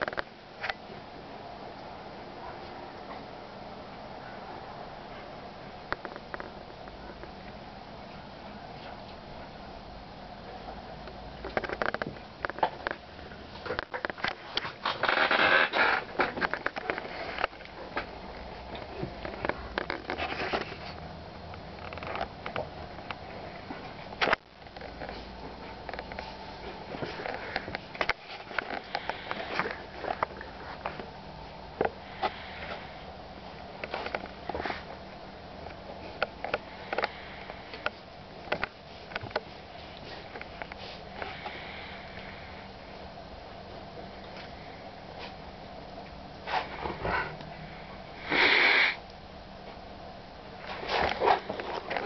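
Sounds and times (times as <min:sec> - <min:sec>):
puppies sniffing and snuffling: 0:10.4 - 0:49.0, 0:50.6 - 0:52.0
dogs huffing and sniffing: 0:46.4 - 0:47.6.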